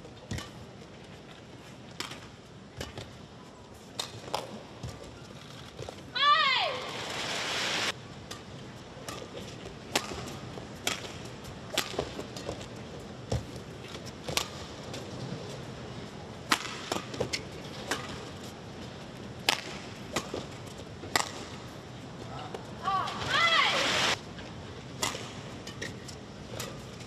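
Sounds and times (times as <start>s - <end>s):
rackets striking a shuttlecock: 8.2s - 12.6s, 16.5s - 18.4s, 19.4s - 21.7s, 24.9s - 26.9s.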